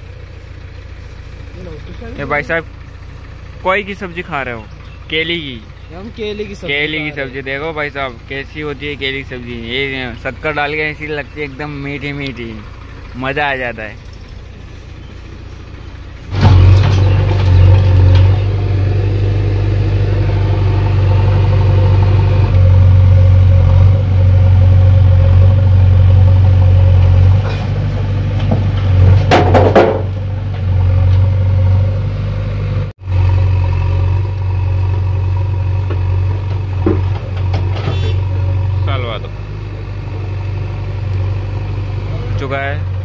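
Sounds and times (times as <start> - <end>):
diesel engines droning: 0.0 - 43.0.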